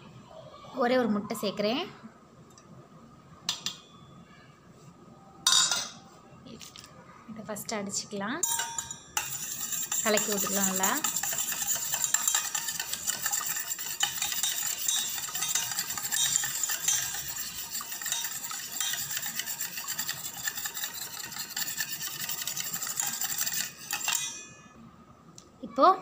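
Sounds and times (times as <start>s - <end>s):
whisk beating egg in metal bowl: 9.2s - 24.4s.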